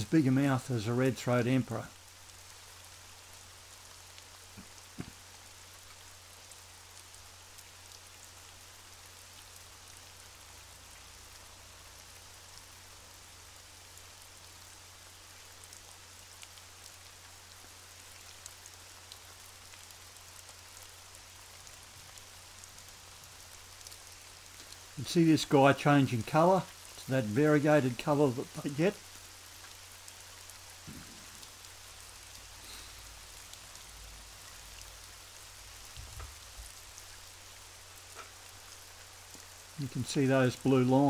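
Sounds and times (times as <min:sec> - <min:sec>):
underwater crackling hiss: 0:32.4 - 0:33.3.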